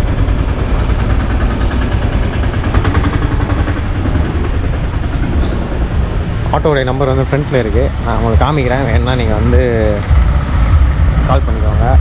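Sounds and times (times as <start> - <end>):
small engine chugging: 0.0 - 12.0.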